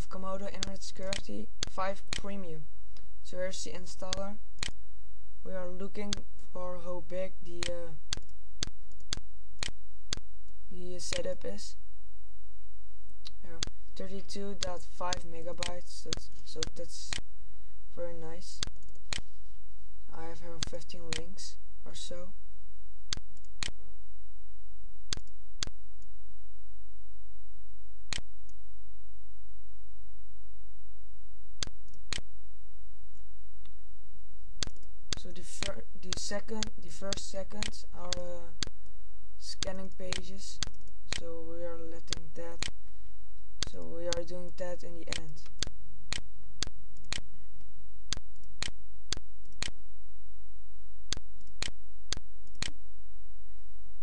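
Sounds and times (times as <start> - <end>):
low hum: 0.0 - 54.0
sharp clicks: 0.6 - 2.3, 25.1 - 25.7, 34.6 - 38.7, 39.6 - 41.3, 42.0 - 42.8, 51.1 - 52.8.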